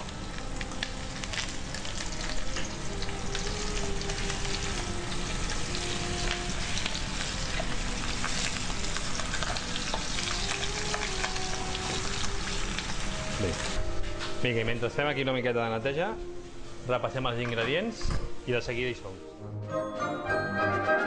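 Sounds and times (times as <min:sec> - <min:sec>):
chicken sizzling in hot oil: 0:00.0 - 0:13.8.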